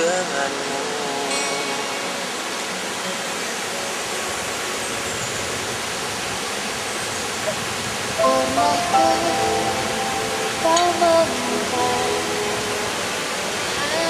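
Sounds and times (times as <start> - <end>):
man singing: 0.0 - 2.3, 8.2 - 10.0, 10.6 - 14.0
waterfall rushing: 0.0 - 14.0.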